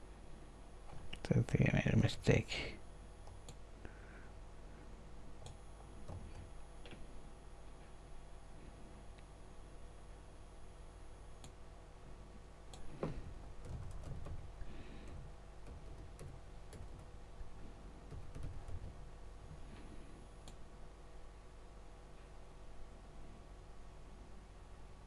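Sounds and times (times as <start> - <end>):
steady low hum: 0.0 - 25.0
keyboard typing: 5.4 - 6.5, 13.6 - 17.2, 18.1 - 19.1.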